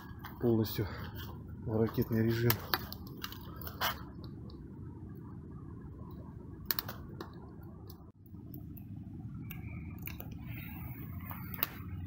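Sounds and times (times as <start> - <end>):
burning wood crackles: 0.0 - 4.7, 6.6 - 8.9, 9.5 - 12.0.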